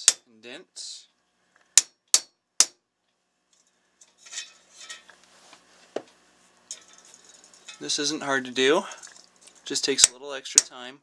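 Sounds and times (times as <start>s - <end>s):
hammer tapping thin steel: 0.0s - 0.2s
metal part clattering and scraping: 3.6s - 5.2s, 6.7s - 8.1s.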